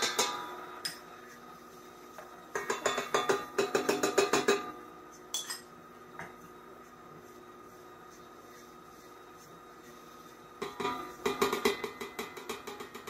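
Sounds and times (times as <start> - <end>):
utensil tapping metal bowl: 2.5 - 5.7, 10.6 - 13.0.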